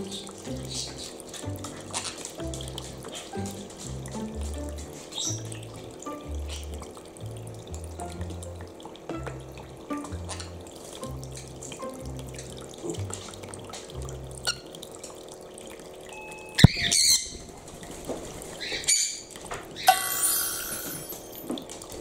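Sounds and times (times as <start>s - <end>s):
background music bass notes: 0.0s - 14.7s
water trickling into basin: 0.0s - 22.0s
bird high-pitched call: 16.3s - 17.4s.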